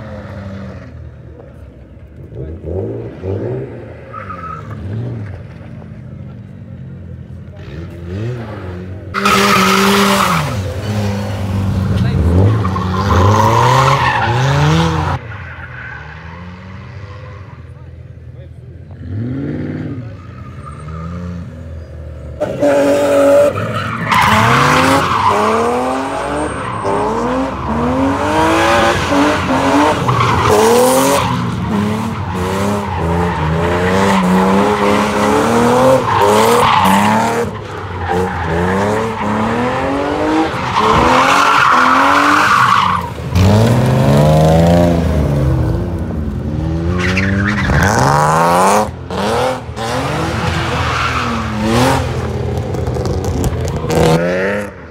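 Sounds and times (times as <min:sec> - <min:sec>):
car engine revving: 0:22.4 - 0:54.9.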